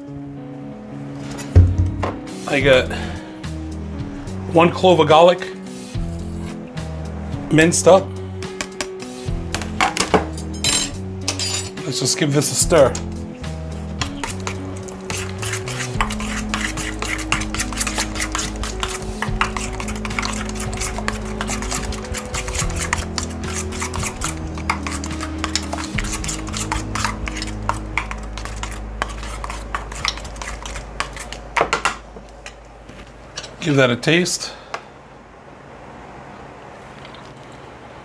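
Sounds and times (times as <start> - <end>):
background music: 0.0 - 31.5
metal spoon clinking in bowl: 10.5 - 11.7.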